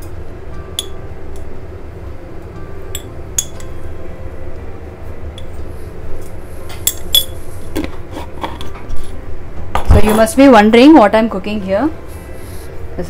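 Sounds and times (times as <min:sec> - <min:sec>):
steady low hum: 0:00.0 - 0:13.0
spoon clinking against glass: 0:02.9 - 0:03.8, 0:06.8 - 0:07.4.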